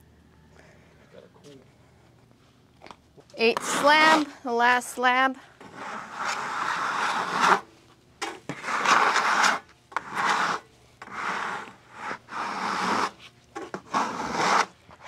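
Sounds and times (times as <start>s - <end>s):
rubbing strokes on wood slab: 5.6s - 7.6s, 8.5s - 14.8s.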